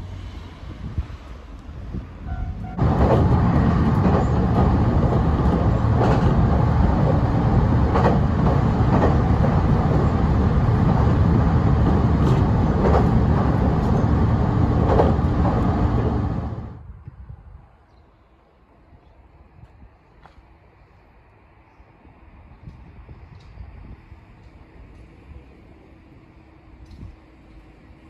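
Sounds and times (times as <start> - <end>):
heavy vehicle rumbling: 0.0 - 16.8.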